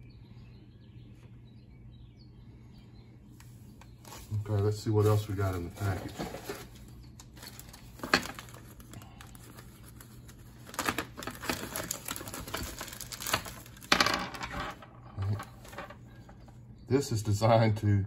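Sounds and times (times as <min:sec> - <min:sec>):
plastic bag crinkling: 0:04.1 - 0:14.7.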